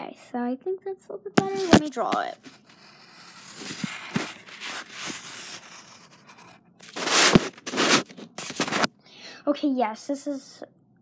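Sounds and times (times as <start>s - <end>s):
pencil scratching on paper: 1.4s - 8.9s.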